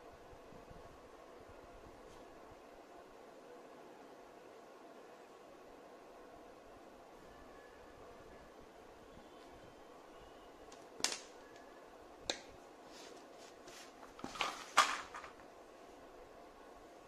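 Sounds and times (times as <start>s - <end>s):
sketchbook handling on wooden table: 13.6s - 15.4s.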